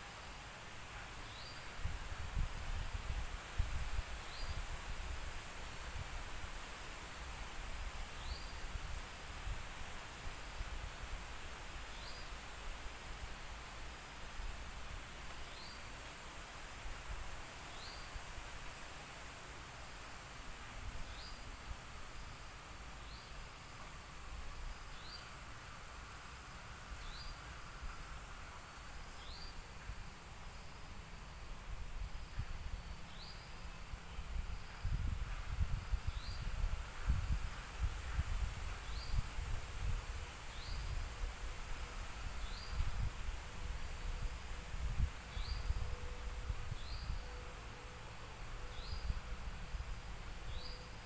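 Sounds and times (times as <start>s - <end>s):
high insect hiss: 0.0s - 51.0s
wind rumble on microphone: 1.7s - 6.6s, 31.5s - 47.6s.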